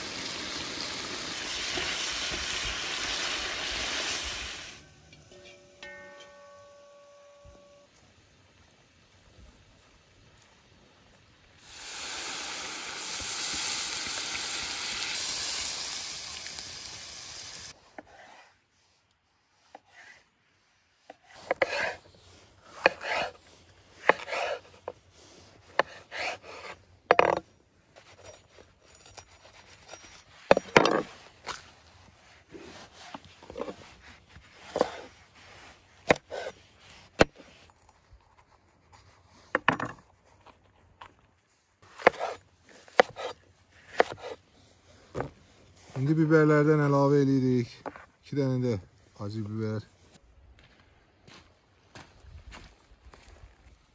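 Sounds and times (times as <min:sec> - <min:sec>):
liquid hissing in hot pan: 0:00.0 - 0:04.8, 0:11.6 - 0:17.8
knife slicing on wooden board: 0:21.2 - 0:22.0, 0:22.8 - 0:23.3, 0:24.0 - 0:24.9, 0:36.0 - 0:37.6, 0:41.9 - 0:44.4.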